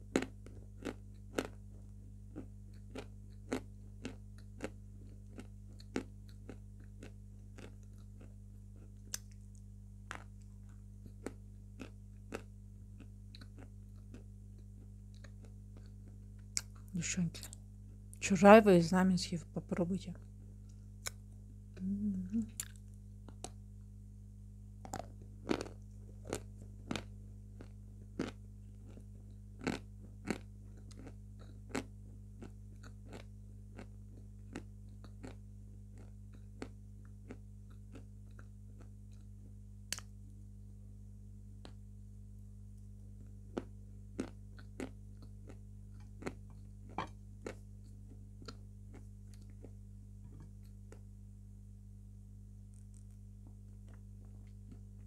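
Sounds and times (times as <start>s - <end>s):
steady low hum: 0.0s - 55.0s
chewing crunchy chalk: 2.3s - 9.5s, 24.8s - 39.3s.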